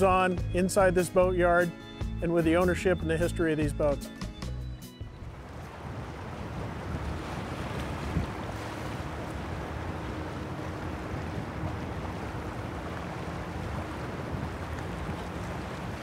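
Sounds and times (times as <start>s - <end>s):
water rushing along hull: 0.0s - 4.0s, 5.1s - 16.0s
wind buffeting microphone: 5.2s - 16.0s.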